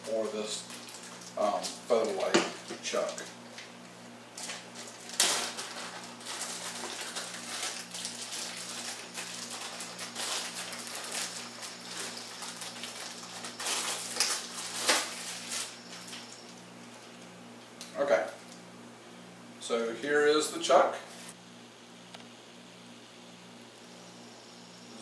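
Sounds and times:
faint electrical hum: 0:00.0 - 0:25.0
plastic wrapping crinkling: 0:00.6 - 0:02.3, 0:04.4 - 0:17.0.

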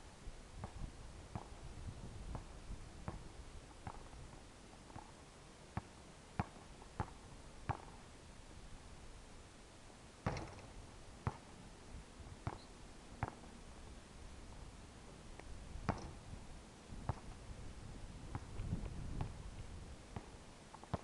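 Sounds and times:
basketball bouncing on court: 0:05.8 - 0:08.0, 0:10.3 - 0:11.5, 0:12.4 - 0:12.6, 0:15.9 - 0:16.1.

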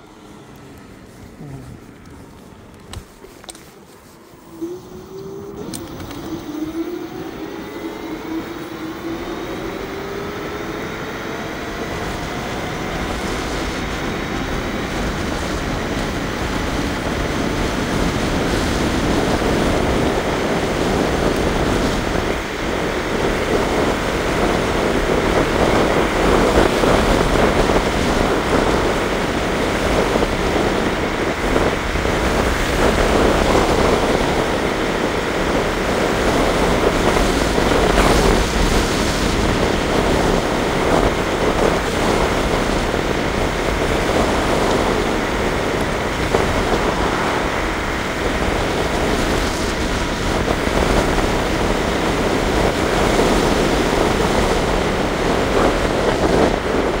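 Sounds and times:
electric motor whining: 0:00.0 - 0:30.8
wind rushing over microphone: 0:00.0 - 0:57.0.

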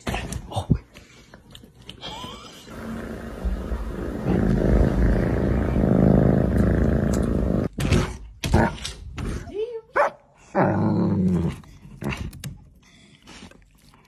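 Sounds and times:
cat purring: 0:02.7 - 0:07.7.

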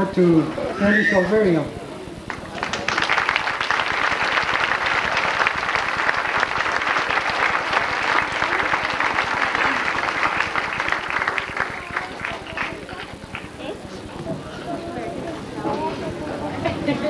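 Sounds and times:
large audience applauding: 0:02.3 - 0:14.0.

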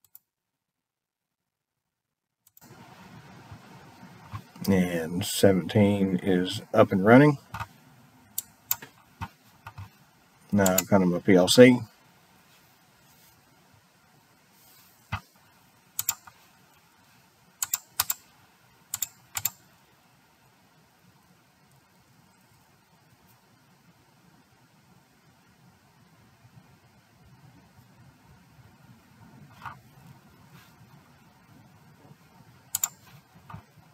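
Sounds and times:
low steady hum: 0:00.8 - 0:33.9
computer mouse clicking: 0:02.4 - 0:02.7, 0:07.5 - 0:10.9, 0:16.0 - 0:16.4, 0:17.6 - 0:18.3, 0:18.9 - 0:19.6, 0:32.7 - 0:33.7.

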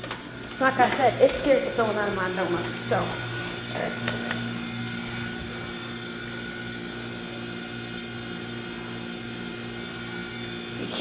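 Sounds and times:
steady machine hum: 0:00.0 - 0:11.0.

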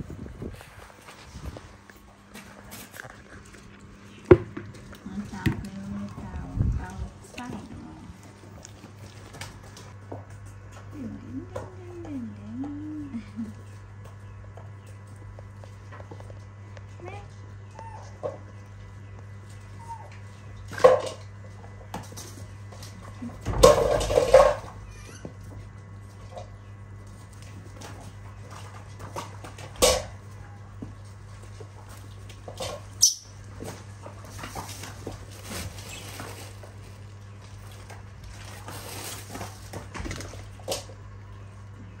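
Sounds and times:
low hum: 0:00.0 - 0:42.0
baby monkeys squeaking and crying: 0:24.8 - 0:25.3, 0:33.0 - 0:33.3.

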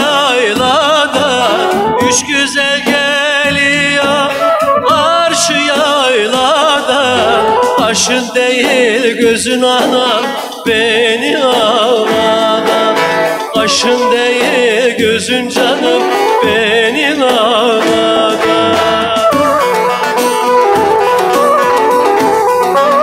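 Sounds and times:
man singing folk song: 0:00.0 - 0:19.9
lute playing: 0:00.7 - 0:08.3, 0:12.2 - 0:23.0.

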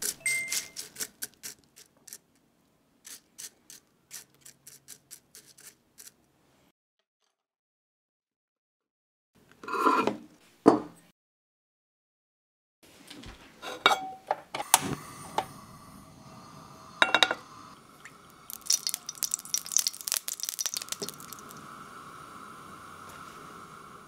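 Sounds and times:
gas burner hissing: 0:14.6 - 0:24.0
oil crackling: 0:18.0 - 0:21.7.

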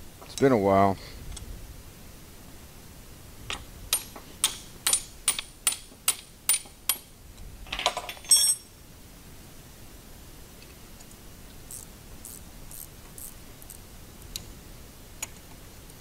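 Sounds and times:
hammer striking wrench: 0:03.9 - 0:07.1
metal rattle and clang: 0:07.7 - 0:08.7.

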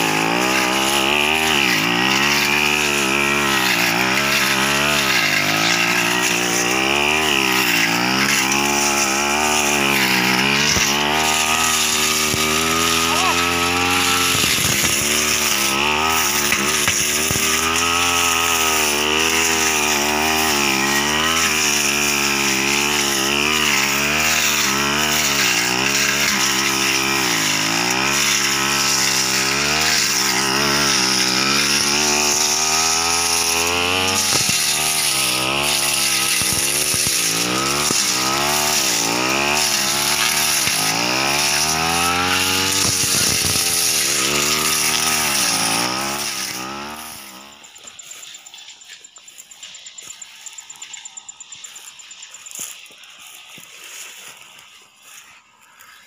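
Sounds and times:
brush cutter engine revving: 0:00.0 - 0:56.0.

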